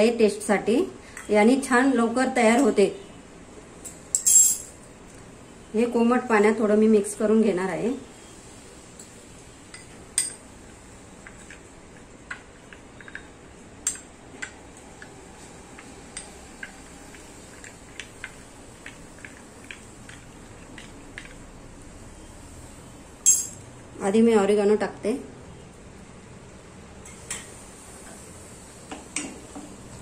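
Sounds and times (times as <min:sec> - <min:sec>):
metal spoon clinking in bowl: 0:03.9 - 0:04.8, 0:23.2 - 0:23.6.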